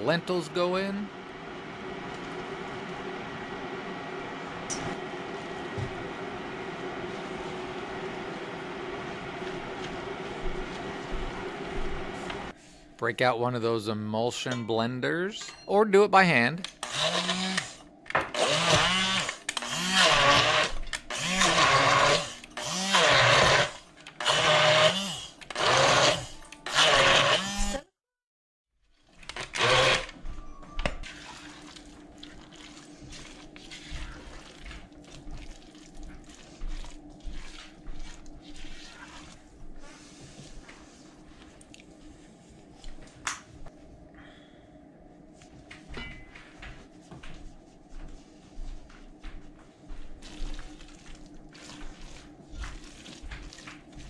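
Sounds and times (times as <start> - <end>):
immersion blender motor whine: 16.8 - 17.8, 18.4 - 27.8, 29.4 - 30.2
spatula scraping a pot: 37.4 - 40.2.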